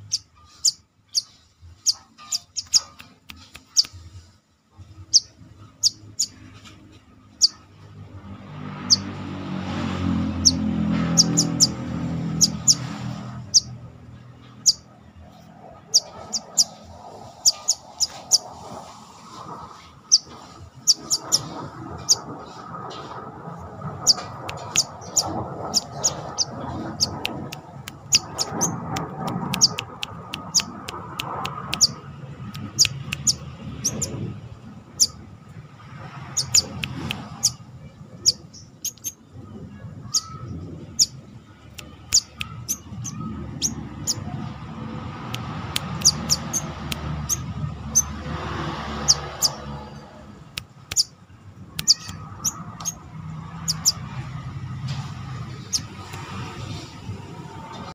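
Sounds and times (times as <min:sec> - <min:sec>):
bird giving high chirps: 0:00.0 - 0:04.0, 0:05.1 - 0:06.4, 0:10.4 - 0:13.8, 0:15.9 - 0:16.8, 0:17.4 - 0:18.5, 0:20.1 - 0:22.2, 0:24.0 - 0:28.8, 0:29.5 - 0:30.8, 0:31.7 - 0:32.0, 0:32.6 - 0:34.2, 0:35.0 - 0:35.2, 0:36.3 - 0:37.6, 0:38.2 - 0:39.2, 0:42.0 - 0:44.3, 0:45.7 - 0:48.2, 0:50.9 - 0:51.2, 0:51.8 - 0:53.0, 0:53.6 - 0:54.0, 0:55.6 - 0:56.1
low background rumble: 0:04.7 - 0:48.2.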